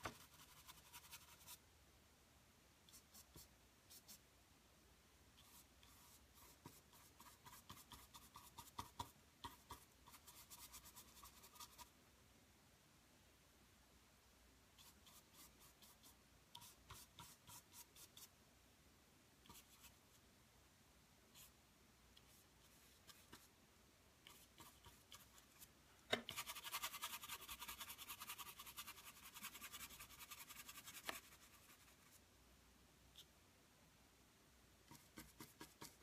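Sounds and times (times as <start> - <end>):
paintbrush scratching on canvas: 0.0 - 1.6, 5.4 - 11.9, 14.8 - 18.3, 22.2 - 23.5, 24.2 - 32.2, 34.9 - 36.0
brush scrubbing back and forth: 26.3 - 32.2.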